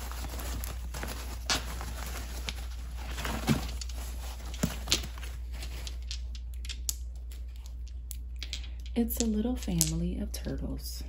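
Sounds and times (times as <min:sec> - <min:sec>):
packing paper rustling: 0:00.0 - 0:06.2.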